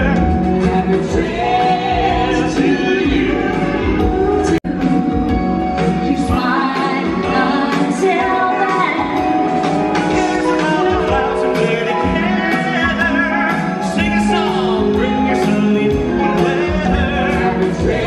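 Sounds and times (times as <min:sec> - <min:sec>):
country band playing: 0:00.0 - 0:18.0.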